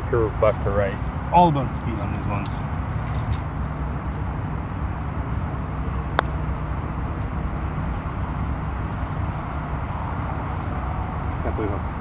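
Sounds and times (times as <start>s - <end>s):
low background rumble: 0.0s - 12.0s
putter striking golf ball: 2.0s - 3.8s, 5.8s - 6.6s.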